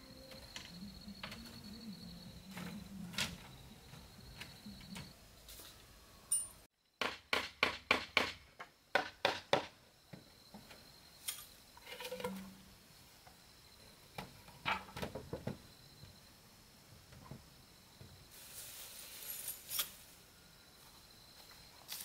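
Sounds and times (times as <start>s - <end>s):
knocks on wooden boards: 7.0s - 9.8s.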